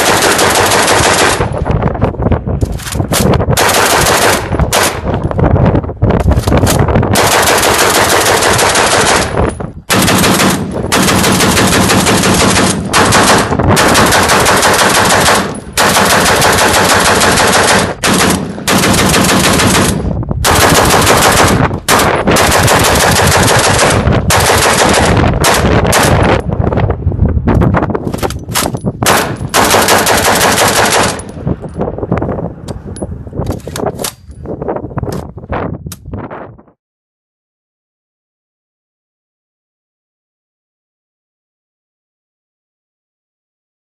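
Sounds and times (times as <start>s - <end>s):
machine gun rapid bursts: 0.0s - 1.5s, 3.6s - 4.9s, 7.2s - 26.2s, 29.1s - 31.2s.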